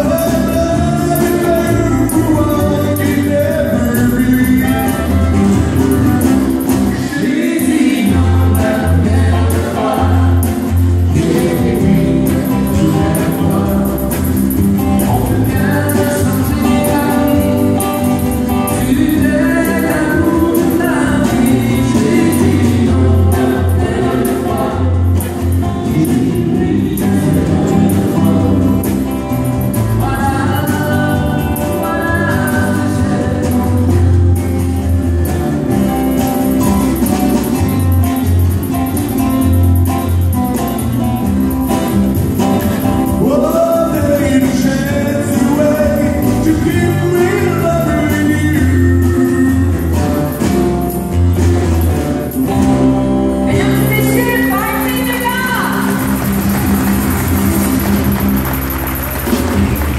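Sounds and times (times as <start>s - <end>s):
men singing together: 0.0s - 34.6s, 43.0s - 50.4s
electric bass guitar: 0.0s - 59.9s
shaken tambourine: 0.0s - 59.9s
strummed acoustic guitars: 0.0s - 59.9s.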